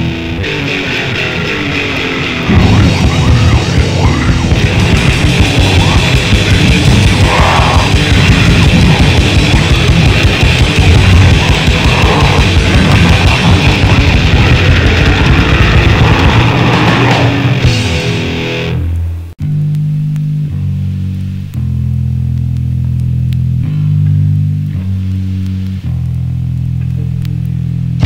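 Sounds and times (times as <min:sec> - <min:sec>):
distorted guitars: 0:00.0 - 0:28.0
fast drumming: 0:02.4 - 0:18.3.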